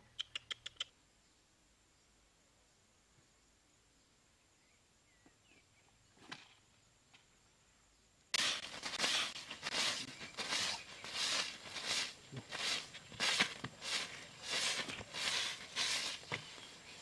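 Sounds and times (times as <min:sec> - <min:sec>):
quiet outdoor ambience: 0:00.0 - 0:17.0
leaves swept across dirt: 0:08.4 - 0:17.0.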